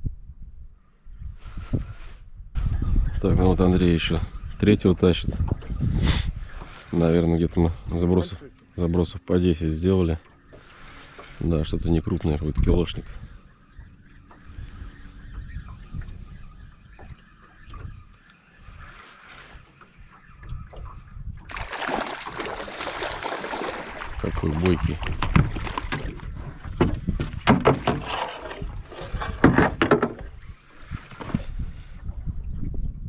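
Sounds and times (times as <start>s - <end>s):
wind buffeting microphone: 0.0s - 8.0s, 11.4s - 19.0s, 19.6s - 33.0s
water splashing: 21.5s - 29.5s
knocking against boat: 25.0s - 28.2s.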